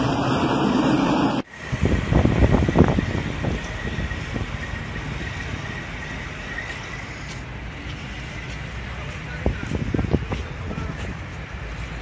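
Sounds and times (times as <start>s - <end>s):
road traffic: 0.0s - 12.0s
wind: 0.0s - 12.0s.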